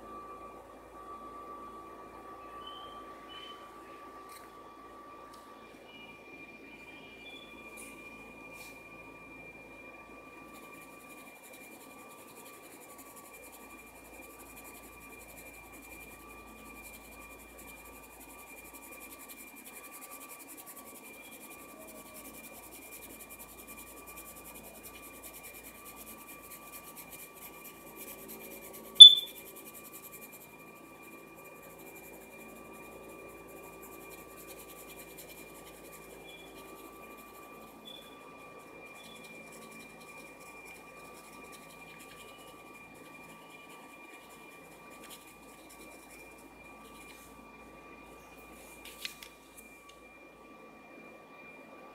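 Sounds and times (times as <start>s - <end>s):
faint steady high whine: 0.0s - 51.9s
short sharp high-pitched blip: 29.0s - 29.3s.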